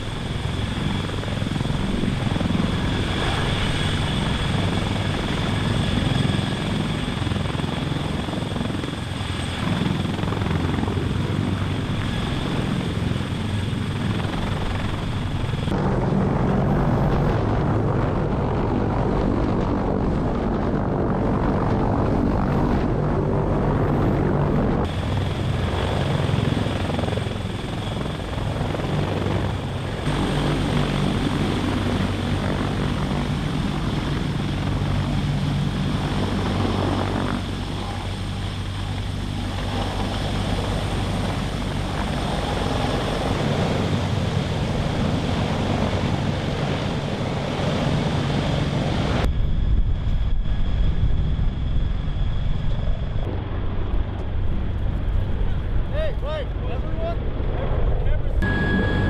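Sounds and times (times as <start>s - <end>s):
high thin engine whine: 0.0s - 45.1s, 58.4s - 59.0s
helicopter rotor noise: 0.0s - 59.0s.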